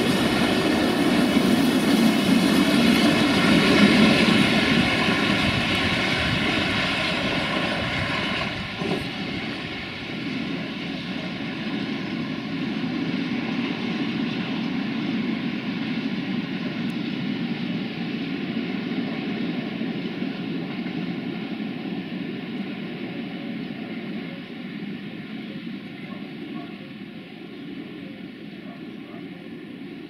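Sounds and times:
train wheels rumbling on rails: 0:00.0 - 0:21.2.

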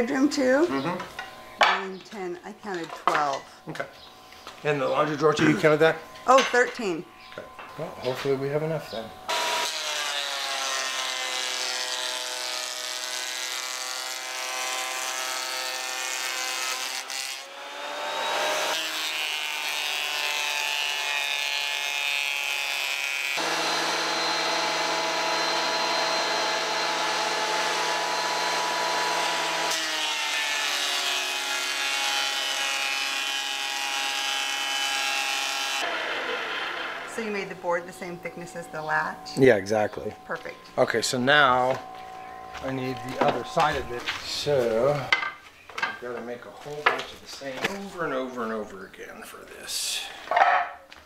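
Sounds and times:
thickness planer motor whine: 0:23.2 - 0:38.4.

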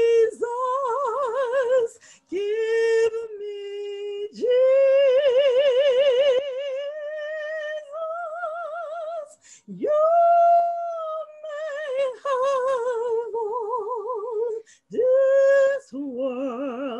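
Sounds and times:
woman breathing: 0:01.9 - 0:02.3, 0:09.3 - 0:09.7, 0:14.6 - 0:14.9.

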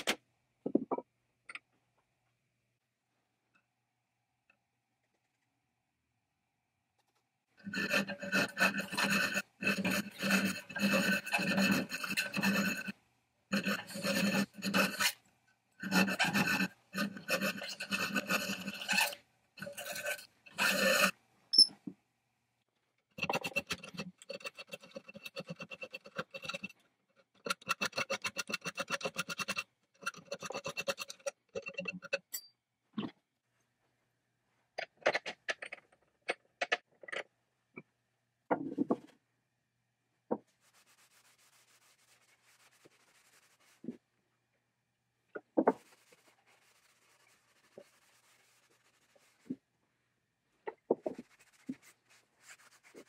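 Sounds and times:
file rasping on metal bit: 0:07.7 - 0:15.2, 0:15.8 - 0:21.2, 0:23.2 - 0:26.7, 0:27.4 - 0:32.3.

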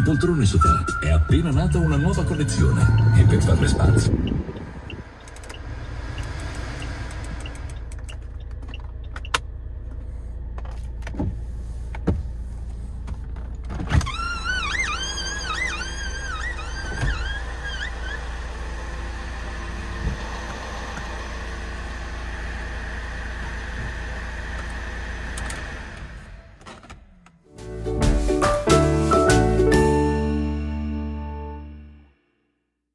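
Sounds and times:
car engine idling: 0:01.8 - 0:29.6
control clicks: 0:04.2 - 0:09.5.

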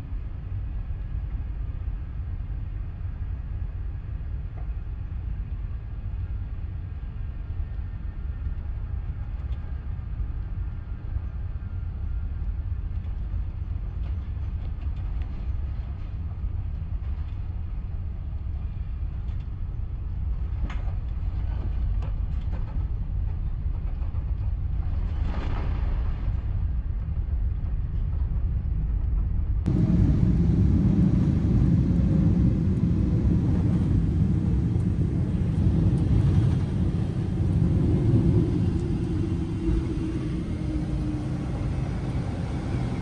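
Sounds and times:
aircraft cabin rumble: 0:08.8 - 0:43.0.

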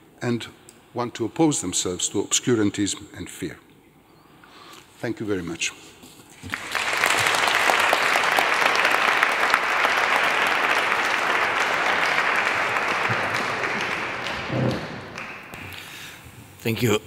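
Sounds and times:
audience applauding: 0:06.4 - 0:16.0.

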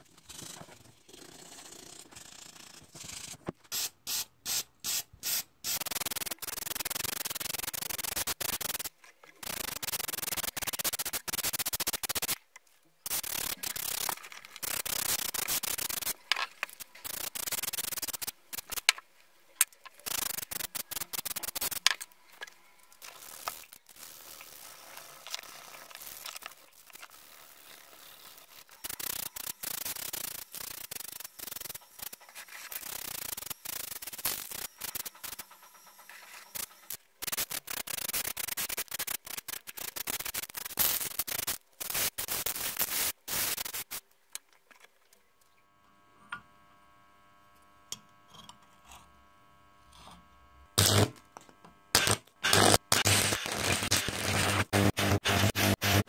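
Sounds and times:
power tool rasping on metal: 0:22.9 - 0:43.9, 0:49.8 - 0:51.2, 0:51.9 - 0:56.0.

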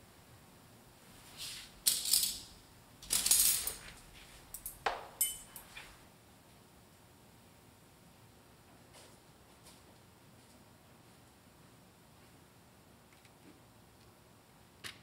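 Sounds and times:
metal tableware clattering: 0:05.2 - 0:05.8.

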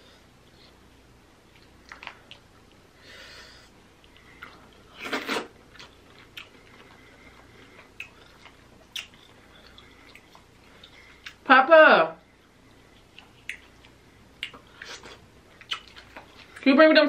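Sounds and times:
chewing: 0:01.5 - 0:02.8, 0:04.0 - 0:11.4, 0:12.3 - 0:16.7
wet bite: 0:08.0 - 0:10.4, 0:14.4 - 0:16.6.

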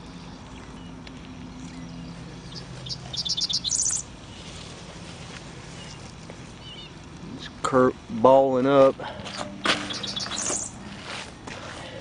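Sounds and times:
distant bird calls: 0:00.0 - 0:07.1, 0:09.0 - 0:10.9
songbird trilling: 0:01.6 - 0:04.5, 0:05.7 - 0:07.0, 0:09.3 - 0:10.8.

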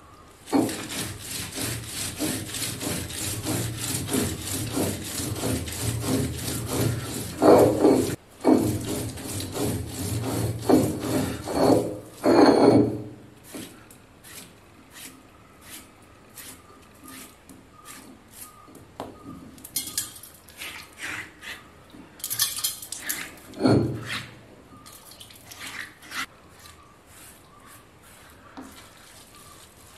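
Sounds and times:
stone roller grinding: 0:00.5 - 0:15.8
stone knocks and scrapes: 0:03.4 - 0:13.7.

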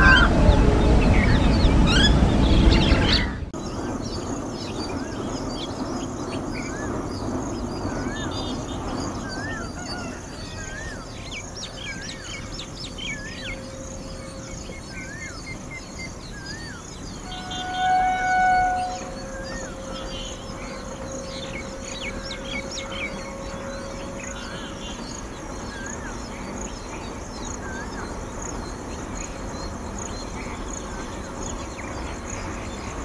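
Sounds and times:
birds calling and chirping: 0:00.0 - 0:33.0
bird whistle rising and falling: 0:16.3 - 0:20.8.

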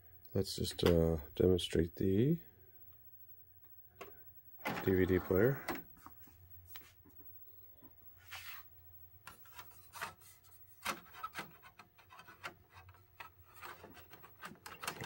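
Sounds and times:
disc tray opening: 0:04.6 - 0:05.9
soft rubbing: 0:08.1 - 0:08.7
disc clicking on plastic tray: 0:10.8 - 0:15.0.

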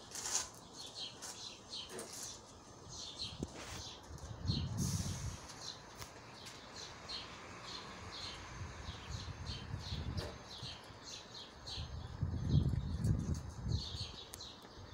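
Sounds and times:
bird chirping: 0:05.5 - 0:14.9.

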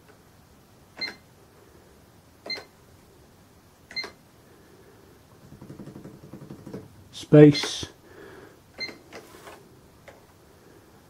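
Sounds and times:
cash register key click and beep: 0:01.0 - 0:01.2, 0:02.5 - 0:02.7, 0:03.9 - 0:04.2.

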